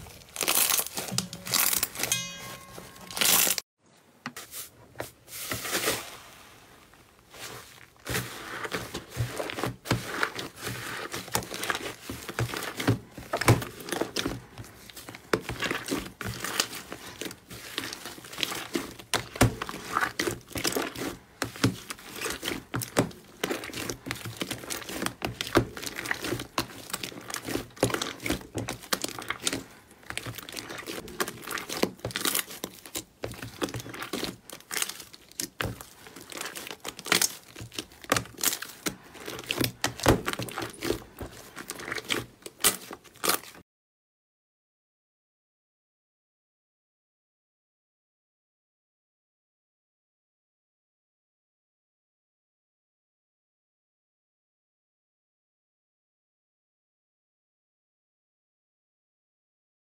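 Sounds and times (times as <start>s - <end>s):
slime squelching and popping: 7.4s - 43.6s.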